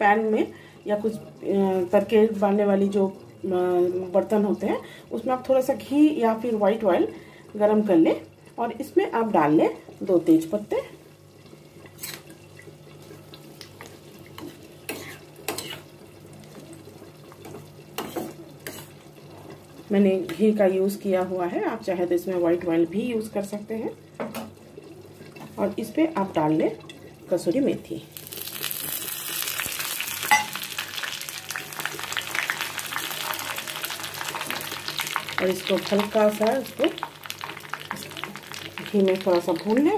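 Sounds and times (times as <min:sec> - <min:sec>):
leaves sizzling in hot fat: 0:09.4 - 0:20.9, 0:28.0 - 0:39.9
metal spoon scraping a pan: 0:11.9 - 0:12.3, 0:14.4 - 0:15.9, 0:18.0 - 0:19.0.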